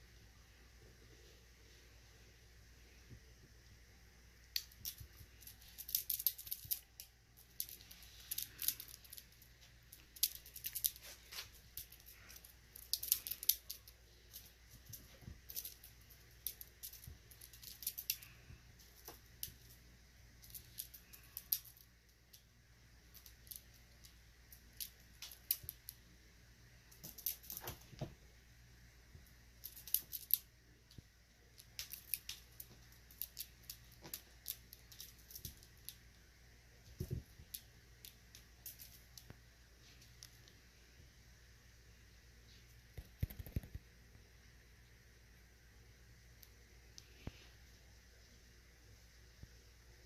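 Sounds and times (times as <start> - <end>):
kitten claws scrabbling on fleece: 43.0 - 43.8.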